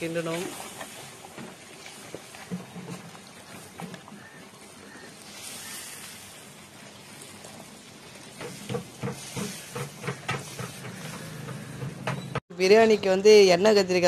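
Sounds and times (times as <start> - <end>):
gravy bubbling and hissing: 0.0 - 12.1
ladle knocking against a pot: 8.4 - 12.4.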